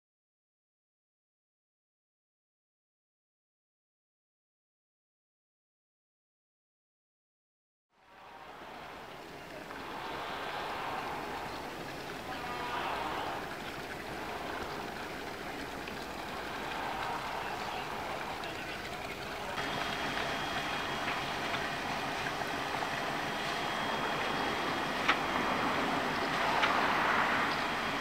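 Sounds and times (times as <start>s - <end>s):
faint steady whine: 8.0s - 28.0s
rushing water and wind: 8.0s - 28.0s
boat diesel engine running: 8.3s - 28.0s.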